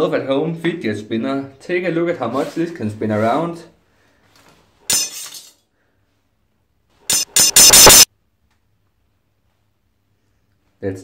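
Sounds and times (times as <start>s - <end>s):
metal clattering on tiles: 4.9s - 5.6s
metallic clink: 4.9s - 5.6s, 7.1s - 8.1s.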